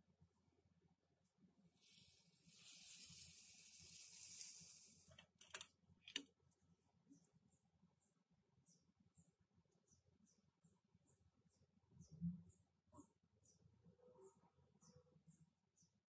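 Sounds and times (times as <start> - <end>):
syrup pouring hiss: 1.8 - 5.1
clicks: 5.1 - 6.3.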